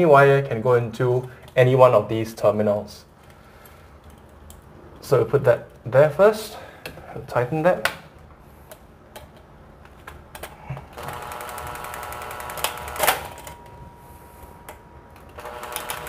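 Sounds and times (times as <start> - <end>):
cordless drill whirring and clicking: 11.0 - 13.4, 15.2 - 16.0.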